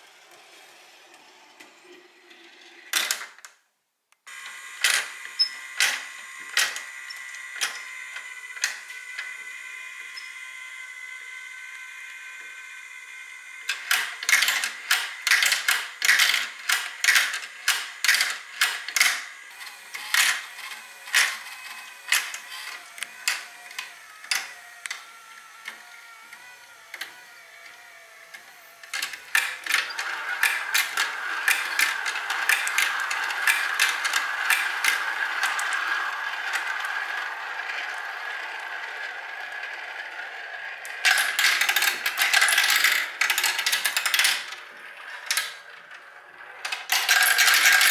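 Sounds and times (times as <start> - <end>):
motorised chain lift whine: 4.3 - 47.9
marbles rolling in plastic funnel: 28.9 - 47.9.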